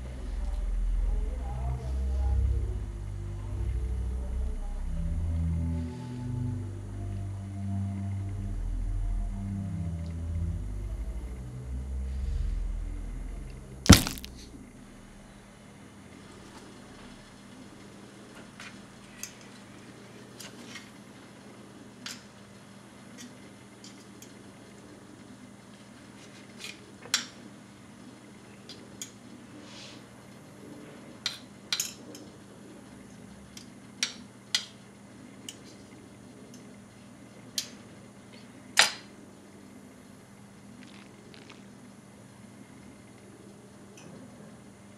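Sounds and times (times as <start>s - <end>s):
faint low hum: 0.0s - 20.2s.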